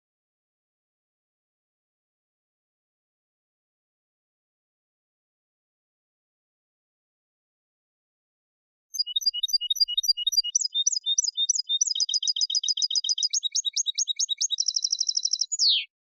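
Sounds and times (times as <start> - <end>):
goldfinch singing: 9.0 - 16.0.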